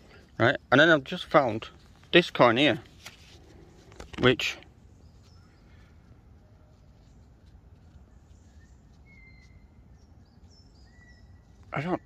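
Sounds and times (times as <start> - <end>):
bird chirps and whistles: 8.4 - 11.5.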